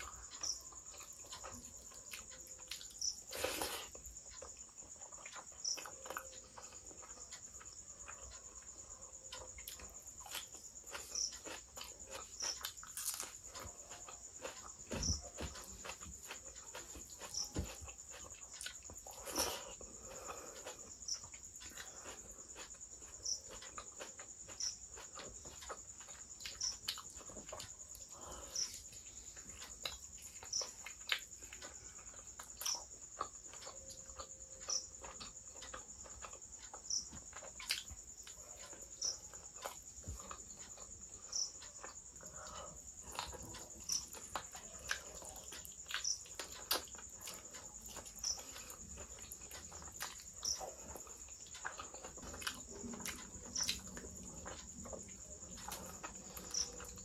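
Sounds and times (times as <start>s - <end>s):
wet chewing and lip smacks: 28.8s - 57.0s.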